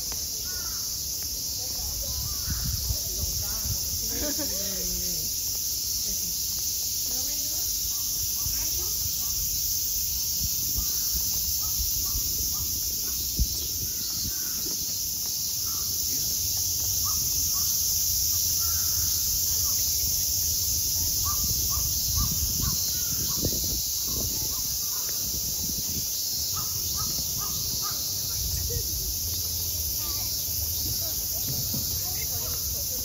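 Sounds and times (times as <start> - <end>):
cicadas droning: 0.0 - 33.0
birds calling: 10.7 - 20.0, 21.1 - 29.0
thump: 30.8 - 32.2.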